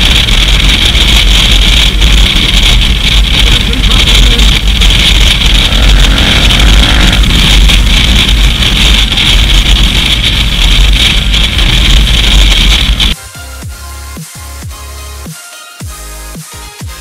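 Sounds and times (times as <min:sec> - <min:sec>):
faint motorcycle engine: 0:00.0 - 0:13.2
distorted wind roar: 0:00.0 - 0:14.7
electronic music: 0:05.4 - 0:09.5, 0:12.8 - 0:17.0.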